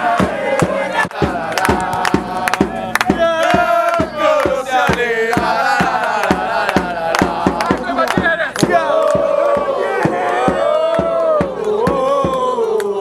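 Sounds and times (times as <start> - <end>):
steady drum beat: 0.0 - 12.7
football supporters chanting: 0.0 - 13.0.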